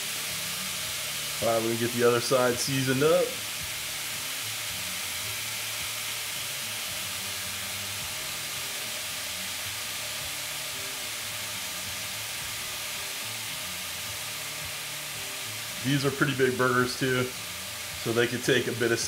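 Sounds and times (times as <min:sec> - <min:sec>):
burger patties sizzling on grill: 0:00.0 - 0:19.0.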